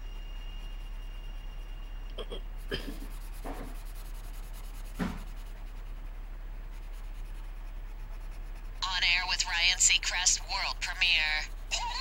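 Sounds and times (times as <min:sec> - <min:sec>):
low hum: 0:00.0 - 0:12.0
marker scratching on paper: 0:02.5 - 0:12.0.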